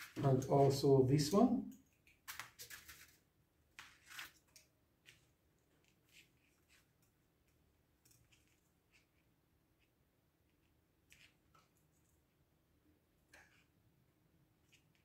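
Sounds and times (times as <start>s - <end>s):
pliers clicking and scraping wire: 7.0s - 9.2s.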